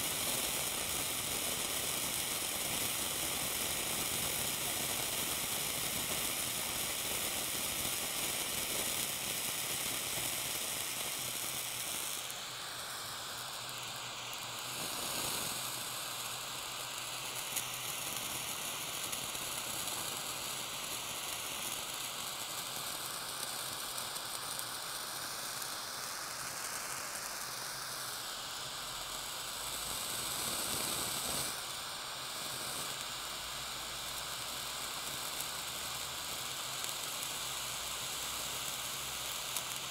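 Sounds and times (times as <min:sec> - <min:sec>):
torch flame hissing: 0:00.0 - 0:39.9.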